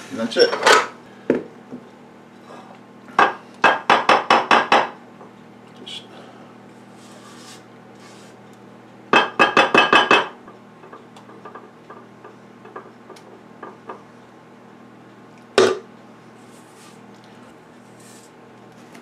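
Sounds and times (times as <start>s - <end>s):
utensil knocking on steel bowl: 9.2s - 10.4s.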